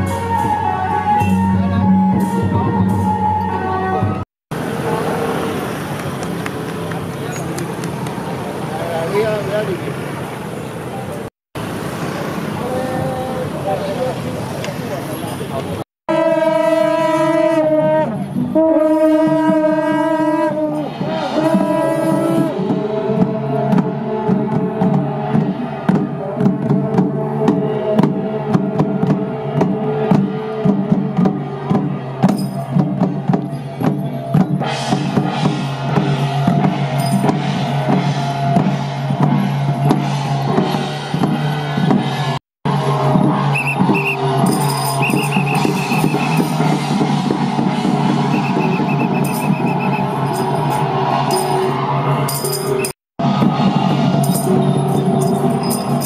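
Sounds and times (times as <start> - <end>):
drums beating: 11.6 - 56.0
brass horn blasts: 16.1 - 32.8, 34.8 - 56.0
cymbals clashing: 32.2 - 56.0
hand gongs: 53.9 - 56.0.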